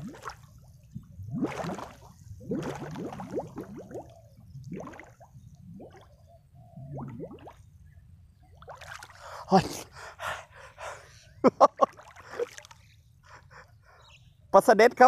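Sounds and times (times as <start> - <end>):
water splashing and trickling: 0.0 - 6.2, 8.4 - 9.9, 11.6 - 13.1
loud splash: 1.4 - 3.8
man gasping and grunting: 9.2 - 11.3.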